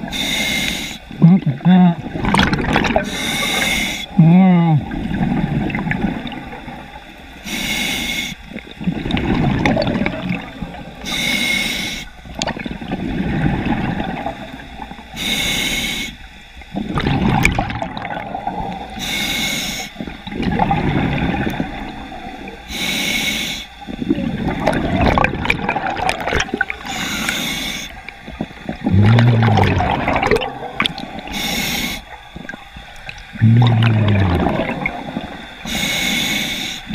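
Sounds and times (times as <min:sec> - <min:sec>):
regulator inhale hiss: 0:00.0 - 0:01.2, 0:03.0 - 0:04.2, 0:07.3 - 0:08.6, 0:11.0 - 0:12.3, 0:15.0 - 0:16.4, 0:18.9 - 0:20.1, 0:22.5 - 0:24.0, 0:26.8 - 0:28.8, 0:31.1 - 0:32.6, 0:35.1 - 0:36.9
gurgling exhaled bubbles: 0:01.2 - 0:07.2, 0:08.5 - 0:11.1, 0:12.2 - 0:15.2, 0:16.7 - 0:19.0, 0:20.0 - 0:22.7, 0:23.8 - 0:35.8.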